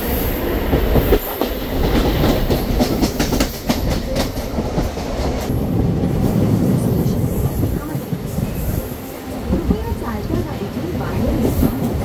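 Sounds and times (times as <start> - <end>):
train rumbling: 0.0 - 12.0
wheels clacking over rail joints: 0.6 - 8.8.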